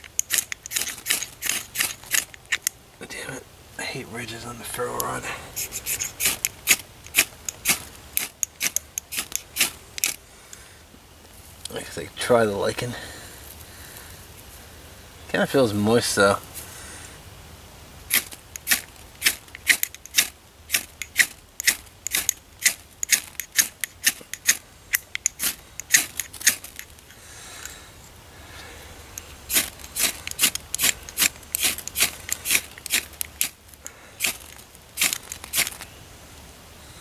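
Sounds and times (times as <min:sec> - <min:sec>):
ferro rod scraped with metal: 0:00.0 - 0:02.7, 0:05.6 - 0:10.2, 0:29.5 - 0:33.6.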